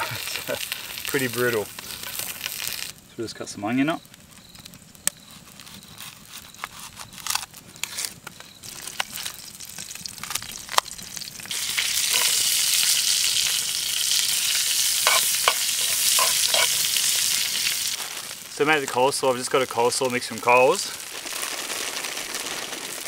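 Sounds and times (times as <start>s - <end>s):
food sizzling in frying pan: 0.0s - 3.0s, 8.6s - 23.0s.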